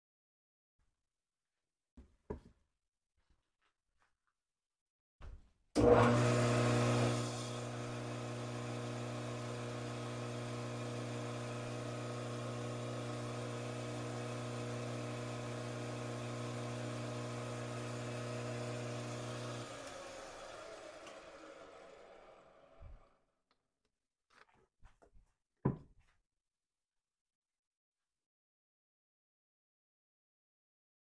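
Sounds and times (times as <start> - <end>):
metal lathe motor humming: 5.8 - 23.2.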